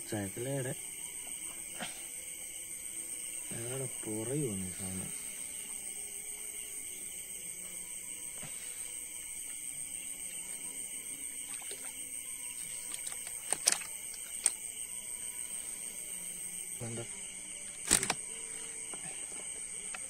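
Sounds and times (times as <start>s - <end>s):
crickets chirring: 0.0s - 20.0s
sharp clicks: 13.0s - 14.6s, 17.8s - 18.2s.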